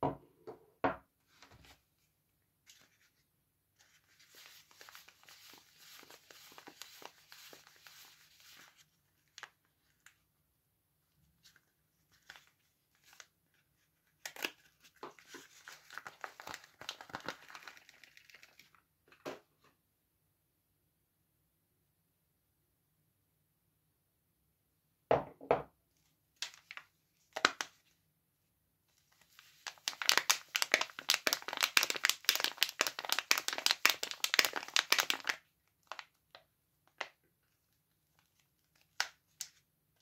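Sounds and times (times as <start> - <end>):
paper wrapper crinkling and tearing: 3.8 - 10.2, 11.4 - 18.8, 26.4 - 27.9, 29.0 - 39.6.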